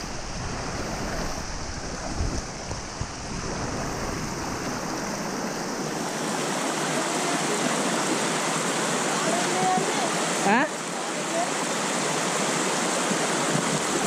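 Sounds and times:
wind rumbling on microphone: 0.0s - 6.7s, 13.3s - 14.0s
stream water rushing: 0.0s - 14.0s.

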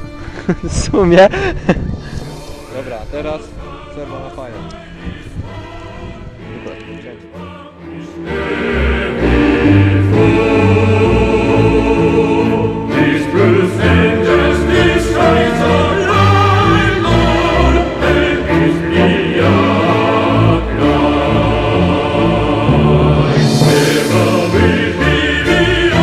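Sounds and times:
choir singing: 2.2s - 26.0s
orchestra playing: 7.8s - 26.0s.

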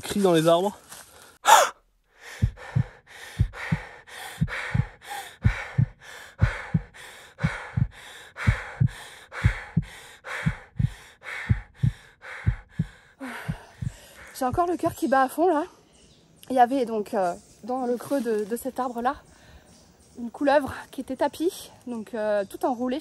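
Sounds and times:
person panting hard: 1.4s - 14.4s
low thumps: 2.4s - 15.0s.

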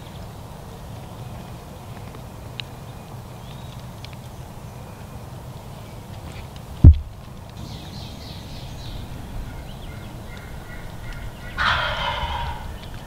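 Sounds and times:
turkey gobbling: 9.4s - 13.0s.

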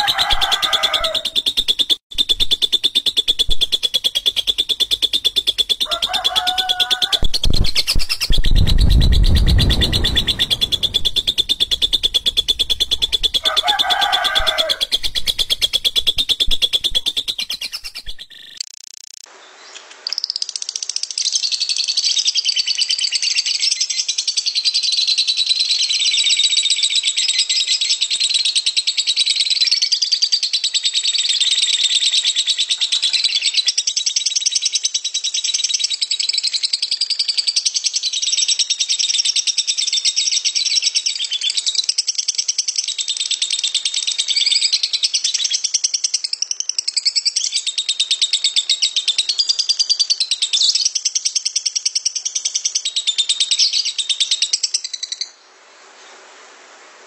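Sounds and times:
lovebird shrill chattering: 0.0s - 18.5s.

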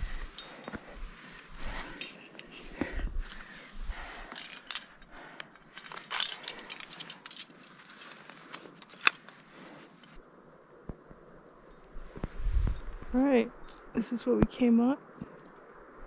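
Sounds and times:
climbing gear clinking: 0.0s - 10.2s.

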